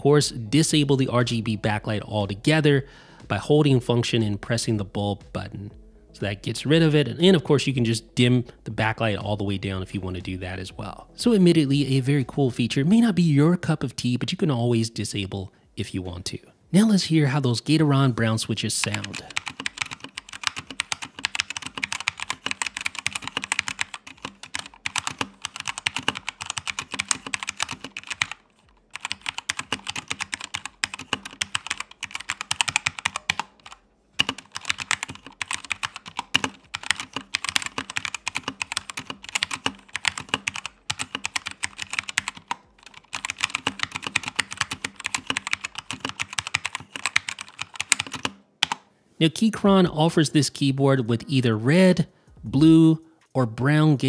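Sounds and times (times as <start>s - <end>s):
mechanical keyboard typing: 18.8s - 48.8s.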